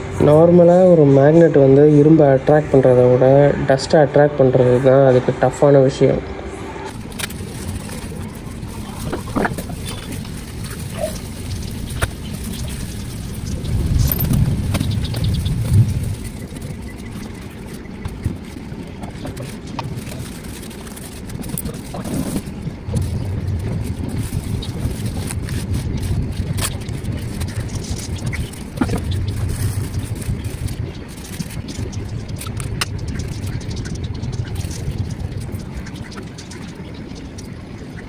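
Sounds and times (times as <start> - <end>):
low background rumble: 0.0 - 38.0
tissue paper rustling: 6.9 - 14.6, 15.5 - 31.6.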